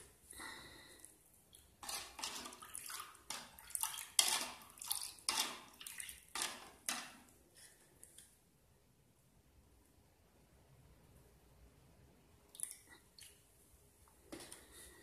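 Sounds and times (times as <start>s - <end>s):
spoon stirring water in bowl: 1.5s - 7.4s.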